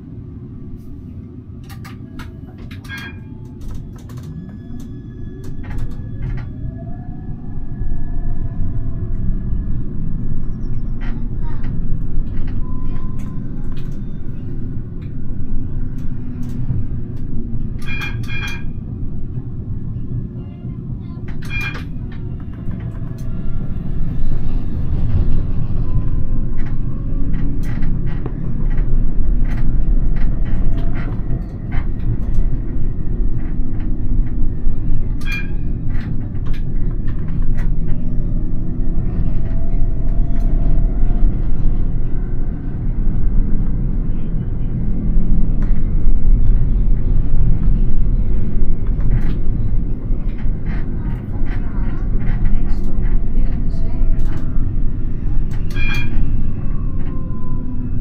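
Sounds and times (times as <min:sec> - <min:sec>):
tram wheels rumbling: 0:00.0 - 0:58.0
sharp clicks from rails: 0:01.6 - 0:06.5, 0:26.4 - 0:38.1.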